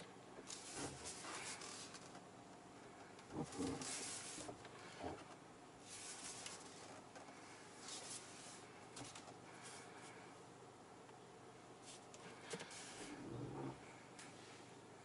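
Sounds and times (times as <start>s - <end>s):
short bursts of rustling hiss: 3.8s - 4.6s, 11.8s - 13.2s.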